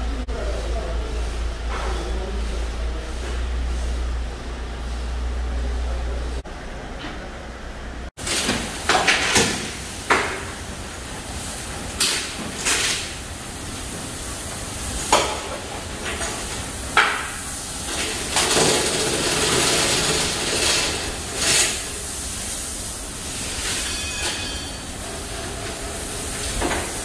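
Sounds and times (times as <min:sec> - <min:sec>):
steady hiss: 0:08.2 - 0:27.0.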